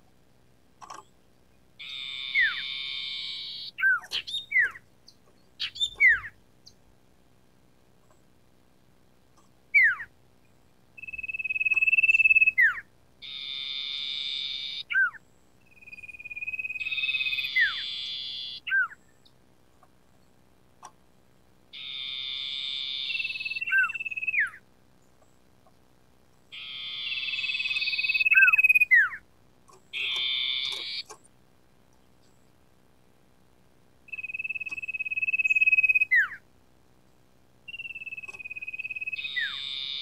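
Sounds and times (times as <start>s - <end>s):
bird singing whistles and rasps: 1.8s - 6.8s, 9.7s - 10.1s, 11.0s - 19.3s, 21.8s - 24.6s, 26.5s - 29.2s, 29.9s - 31.2s, 34.1s - 36.4s, 37.7s - 40.0s.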